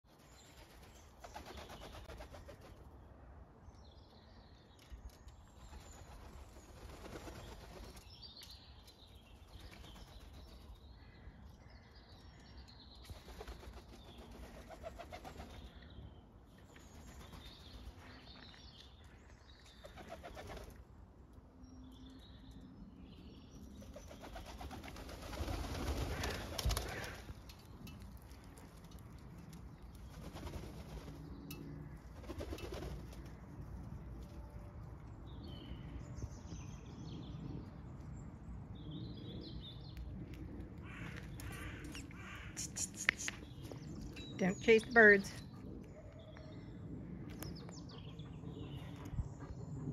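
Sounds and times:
wings flapping: 0:00.4 - 0:02.8, 0:05.6 - 0:08.0, 0:13.1 - 0:15.7, 0:19.8 - 0:20.8, 0:23.8 - 0:27.3, 0:30.0 - 0:31.2, 0:32.2 - 0:33.3.

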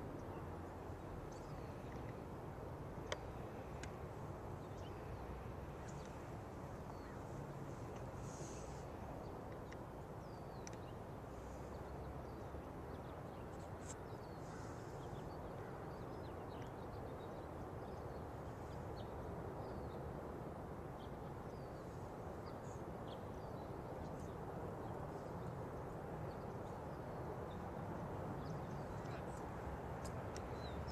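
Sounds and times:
low background noise: 0:00.0 - 0:30.9
small birds chirping: 0:04.6 - 0:20.0, 0:28.4 - 0:30.9.

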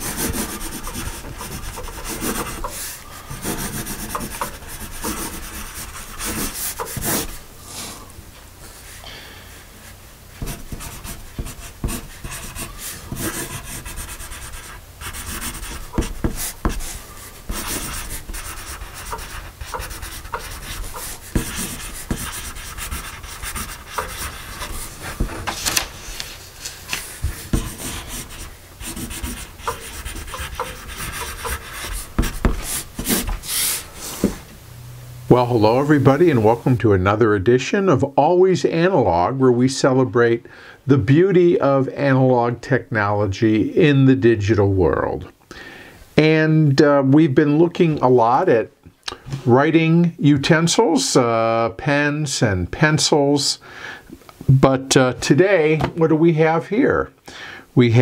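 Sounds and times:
pencil scratching on paper: 0:00.0 - 0:07.4, 0:10.4 - 0:25.5, 0:26.9 - 0:33.9.

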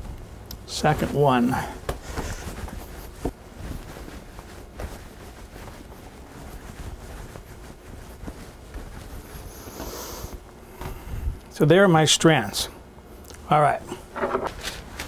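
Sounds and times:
hands rolling dough: 0:00.0 - 0:11.0.

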